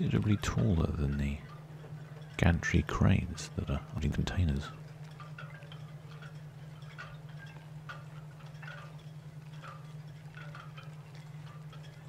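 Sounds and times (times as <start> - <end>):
faint tinkling notes: 0.0 - 12.0
steady low hum: 0.0 - 12.0.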